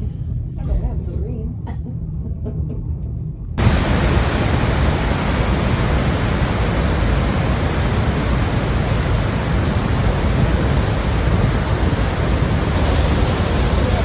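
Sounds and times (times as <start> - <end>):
rush of falling water: 3.6 - 14.0.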